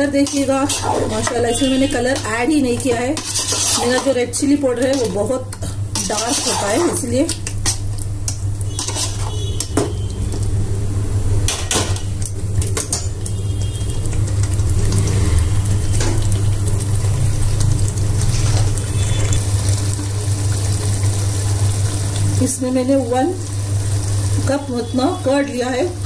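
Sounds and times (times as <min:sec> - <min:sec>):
metal ladle scraping pot: 0:00.2 - 0:05.3, 0:05.9 - 0:07.1, 0:08.7 - 0:09.8.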